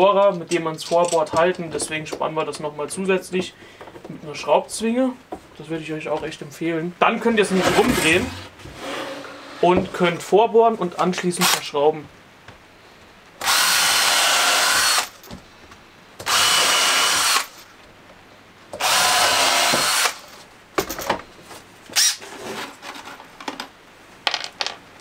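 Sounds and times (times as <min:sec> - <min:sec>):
cordless drill running: 0:13.4 - 0:15.2, 0:16.2 - 0:17.6, 0:18.8 - 0:20.2.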